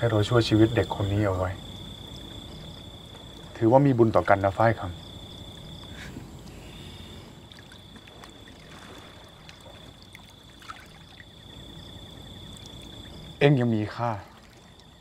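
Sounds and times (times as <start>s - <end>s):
high-pitched insect trill: 0.0s - 15.0s
water sloshing and trickling: 0.0s - 15.0s.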